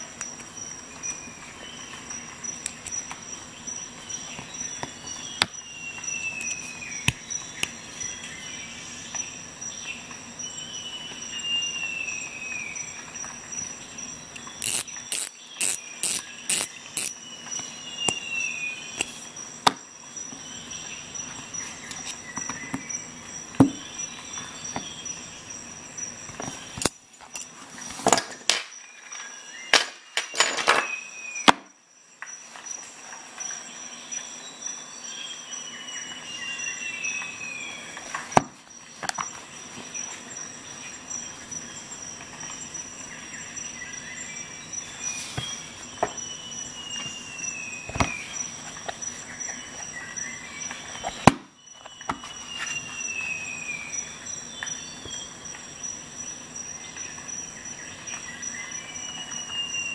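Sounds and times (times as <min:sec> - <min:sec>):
metal tool parts clicking: 0:14.4 - 0:17.2, 0:26.8 - 0:27.5.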